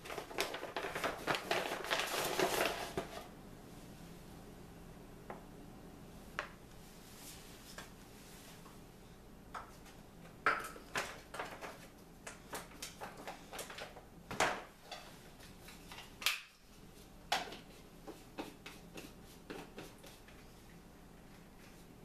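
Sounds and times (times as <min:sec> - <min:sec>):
plastic packaging crinkling: 0:00.0 - 0:03.2.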